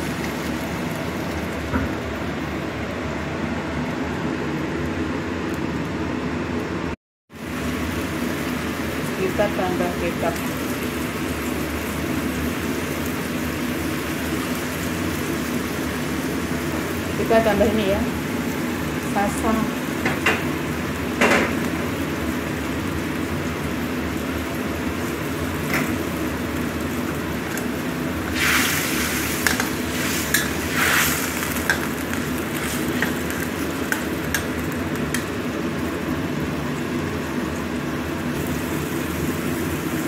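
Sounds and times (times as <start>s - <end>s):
liquid simmering and sizzling in wok: 0.0s - 40.0s
spatula scraping a wok: 28.3s - 34.5s.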